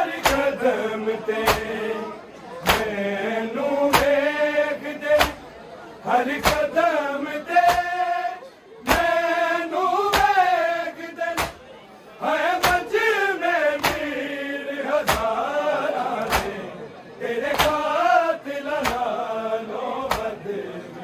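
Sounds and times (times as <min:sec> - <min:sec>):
men chanting a lament: 0:00.0 - 0:21.0
hands beating chests: 0:00.2 - 0:00.5, 0:01.4 - 0:01.7, 0:02.6 - 0:02.9, 0:05.2 - 0:05.4, 0:06.4 - 0:06.7, 0:07.6 - 0:07.9, 0:08.9 - 0:09.2, 0:10.0 - 0:10.4, 0:11.3 - 0:11.6, 0:12.6 - 0:12.9, 0:13.8 - 0:14.1, 0:15.0 - 0:15.4, 0:16.2 - 0:16.6, 0:17.5 - 0:17.9, 0:18.8 - 0:19.1, 0:20.1 - 0:20.3.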